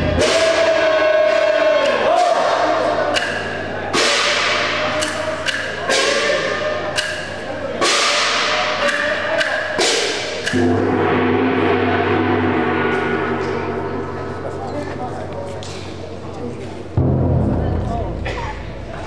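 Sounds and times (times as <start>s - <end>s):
drum hits: 0.0s - 1.5s, 7.8s - 15.3s, 17.0s - 19.0s.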